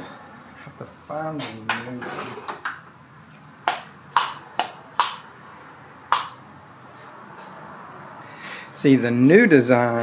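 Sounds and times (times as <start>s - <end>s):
hard parts clicking and knocking: 3.7s - 5.2s.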